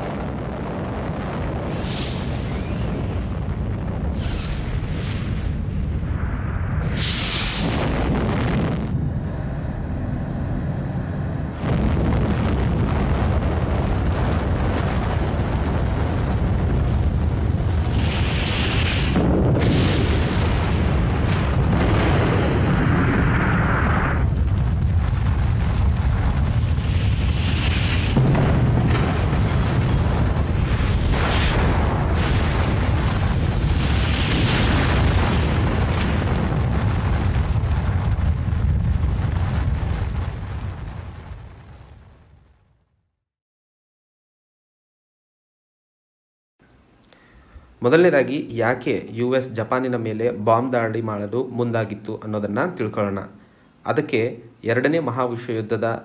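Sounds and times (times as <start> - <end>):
rushing blast wind: 0.0 - 41.4
deep explosion rumble: 0.0 - 42.8.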